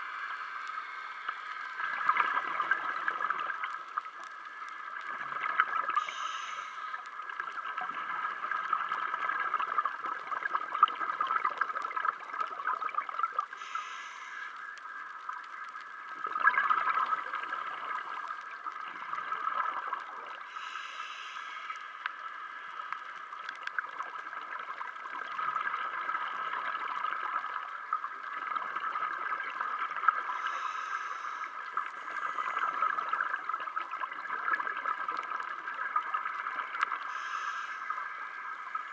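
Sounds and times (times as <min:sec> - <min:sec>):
steady underwater hiss: 0:00.0 - 0:38.9
gurgling exhaled bubbles: 0:01.7 - 0:04.2, 0:04.9 - 0:06.1, 0:07.0 - 0:13.7, 0:16.1 - 0:20.6, 0:23.2 - 0:30.7, 0:31.5 - 0:38.9
regulator inhalation hiss: 0:06.0 - 0:07.0, 0:13.6 - 0:14.7, 0:20.5 - 0:22.0, 0:30.3 - 0:32.6, 0:37.1 - 0:38.4.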